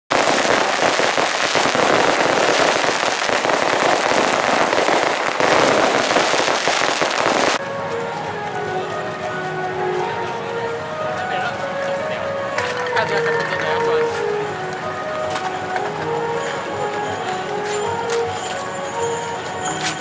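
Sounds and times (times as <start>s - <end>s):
fireworks crackling: 0.1s - 8.5s, 11.2s - 20.0s
music with held tones: 7.6s - 20.0s.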